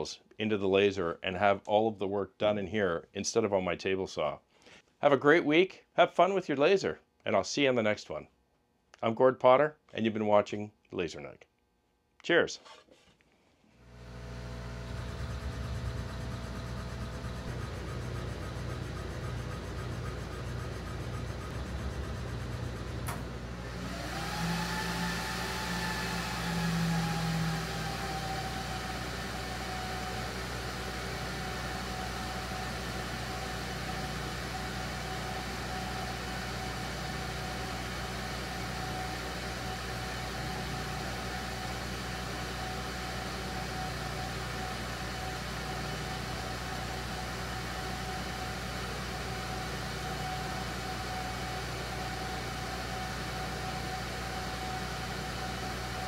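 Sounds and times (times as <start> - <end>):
low hum: 13.9 - 23.8
laser cutter motor whine: 13.9 - 56.0
click: 23.0 - 23.3.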